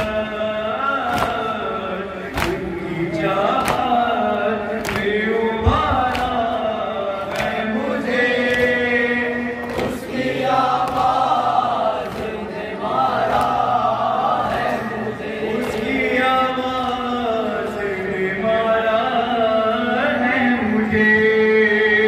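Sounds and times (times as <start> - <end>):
men chanting a lament: 0.0 - 22.0.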